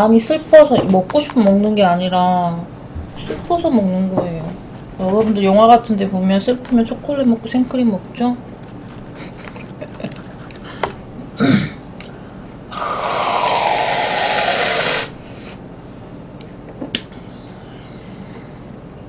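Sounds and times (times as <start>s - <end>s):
aerosol can hissing: 12.7s - 15.2s.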